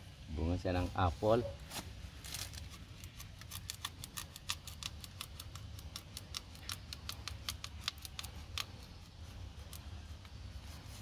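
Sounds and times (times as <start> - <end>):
knife scratching bark: 2.4 - 11.0.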